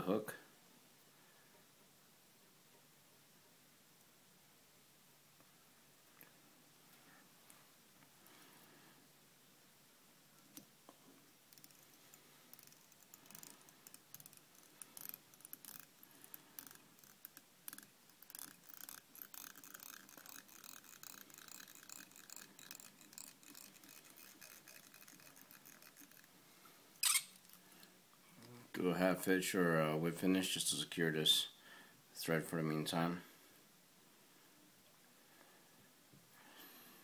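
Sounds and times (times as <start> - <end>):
thread wrapping clicks and scratching: 10.4 - 26.4
short scratch: 27.0 - 27.3.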